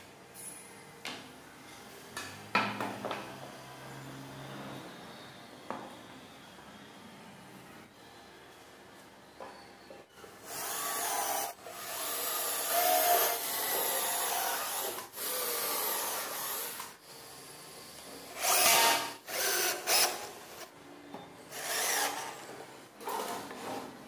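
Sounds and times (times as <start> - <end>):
cordless drill boring into wood: 10.5 - 16.9, 18.4 - 20.6, 21.5 - 22.3.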